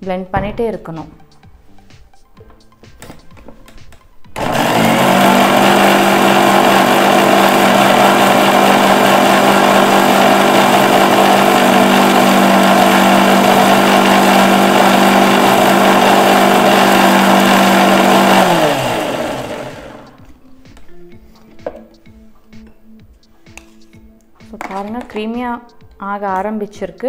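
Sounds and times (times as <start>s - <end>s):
mixer grinder running: 4.4s - 20.2s.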